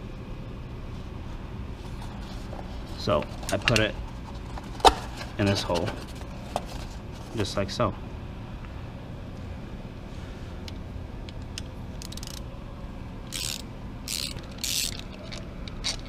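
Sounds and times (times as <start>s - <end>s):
faint tool handling: 1.8s - 7.4s
hand ratchet clicking: 12.0s - 12.4s, 13.3s - 16.0s.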